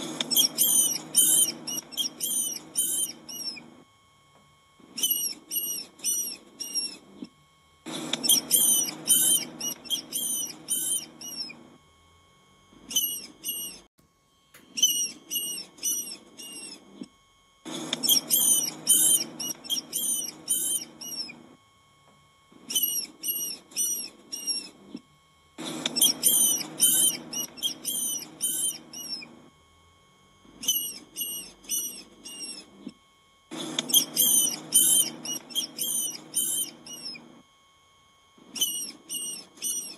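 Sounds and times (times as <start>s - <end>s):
mice squeaking: 0.0s - 3.8s, 4.8s - 7.3s, 7.9s - 11.6s, 12.8s - 13.9s, 14.7s - 17.1s, 17.7s - 21.4s, 22.6s - 25.0s, 25.6s - 29.4s, 30.6s - 32.9s, 33.5s - 37.4s, 38.4s - 39.9s.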